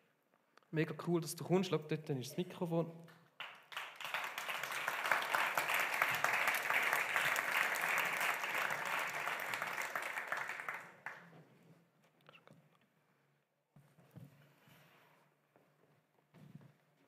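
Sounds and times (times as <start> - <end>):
audience applauding: 3.4 - 11.3.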